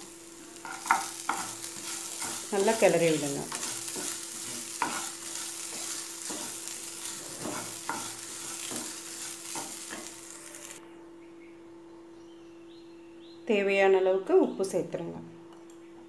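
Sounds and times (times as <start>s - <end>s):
food sizzling in oil: 0.0s - 10.8s
spatula scraping a pan: 0.6s - 10.8s.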